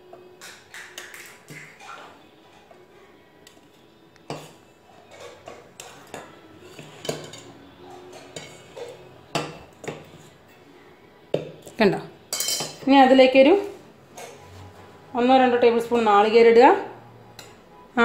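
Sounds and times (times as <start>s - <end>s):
spoon scraping steel bowl: 4.3s - 9.2s.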